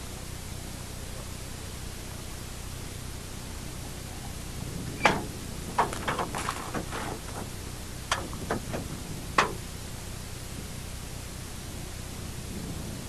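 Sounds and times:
gear knocking and clunking: 4.7 - 9.7.

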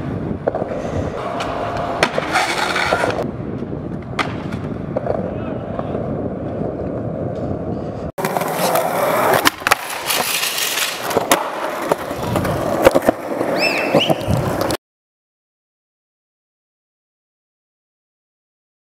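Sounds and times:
skateboard wheels rolling on concrete: 0.0 - 14.8
skateboard clacks on ground: 0.4 - 14.8
skateboard grinding on concrete ledge: 0.6 - 3.2, 8.2 - 14.7.

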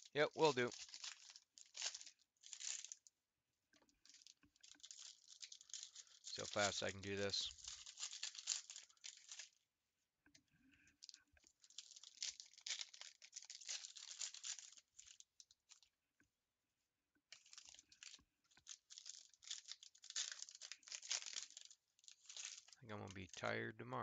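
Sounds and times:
plastic wrapping tearing and crinkling: 0.0 - 3.1, 4.0 - 9.6, 11.0 - 15.9, 17.3 - 22.8.

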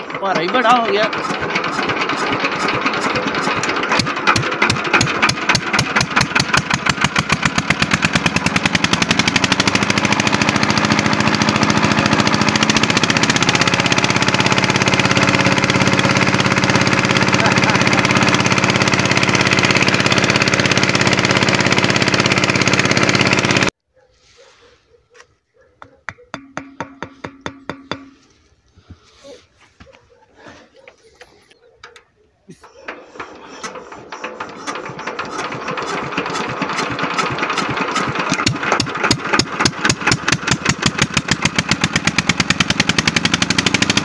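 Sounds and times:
pump engine running: 0.0 - 23.8, 32.6 - 44.0.

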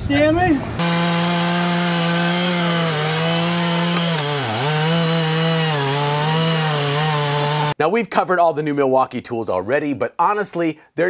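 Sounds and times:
chainsaw cutting log: 0.8 - 7.8.

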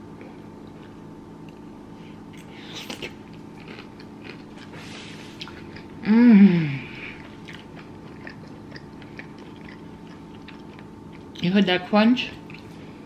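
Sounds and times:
crunchy chewing: 2.3 - 6.0, 7.0 - 11.4, 12.4 - 12.8
person humming mmm: 6.0 - 7.3.

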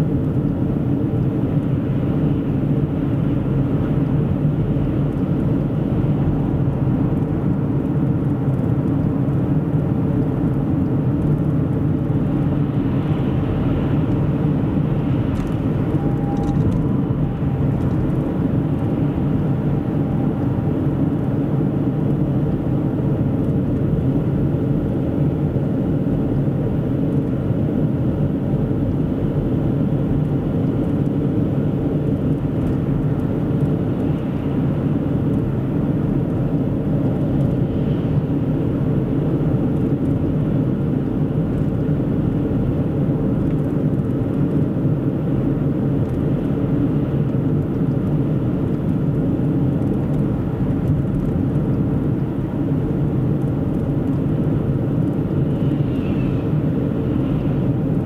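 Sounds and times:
car driving on highway: 0.0 - 58.0.

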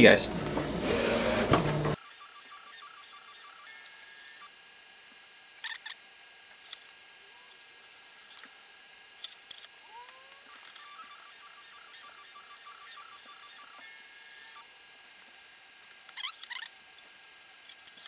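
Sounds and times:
stepper motors whining: 0.0 - 4.5.

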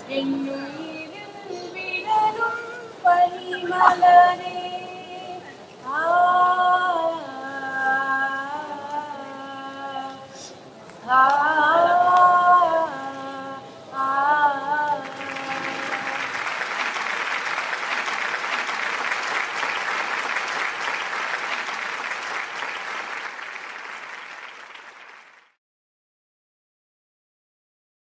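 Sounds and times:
person singing: 0.0 - 16.4
audience applauding: 15.0 - 25.6.

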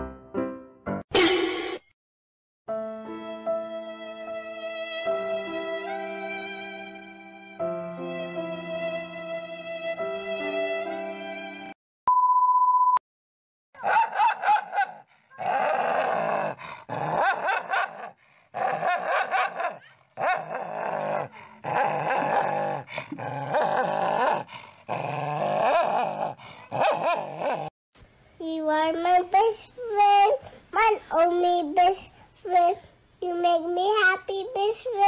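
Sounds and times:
dogs snarling and growling: 13.8 - 27.7.

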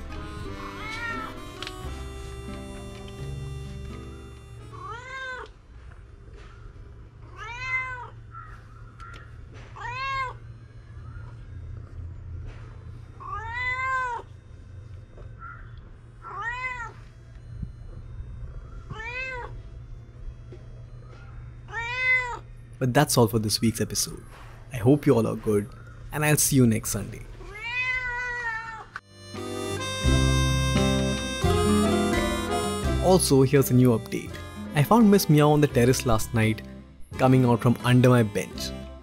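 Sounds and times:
cat meowing: 0.0 - 1.6, 4.7 - 5.6, 7.2 - 8.5, 9.7 - 10.5, 13.2 - 14.3, 16.2 - 17.0, 18.8 - 19.6, 21.7 - 22.5, 27.3 - 29.0.

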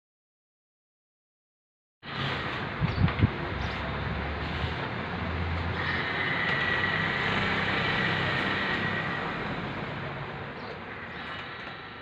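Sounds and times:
electric motor hum with high whine: 2.1 - 12.0.

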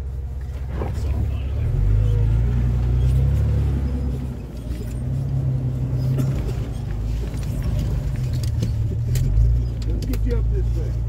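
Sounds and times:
light clicks and rattles: 6.0 - 11.0.

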